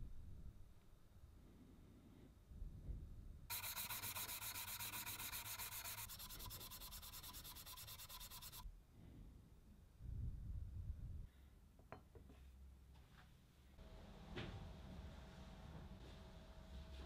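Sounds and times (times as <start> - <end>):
sanding brass: 3.5 - 8.6.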